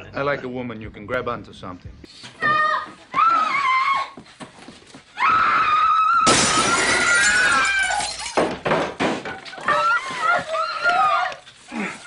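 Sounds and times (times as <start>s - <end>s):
glass shattering and objects breaking: 6.2s - 9.5s.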